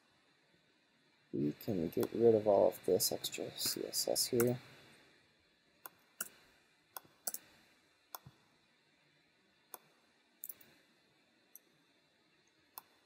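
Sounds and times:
mouse and keyboard clicks: 7.0s - 7.5s.

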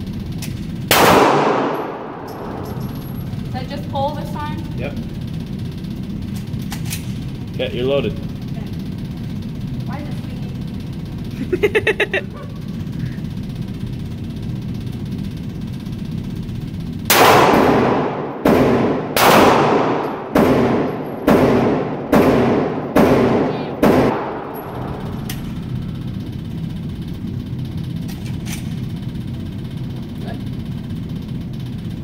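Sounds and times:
steady low hum: 0.0s - 32.0s
handgun shots ringing indoors: 0.4s - 3.2s, 17.1s - 25.6s.

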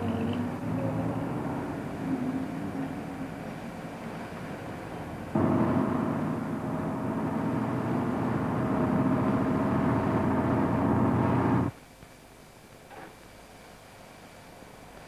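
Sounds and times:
bus engine running: 0.0s - 11.7s.

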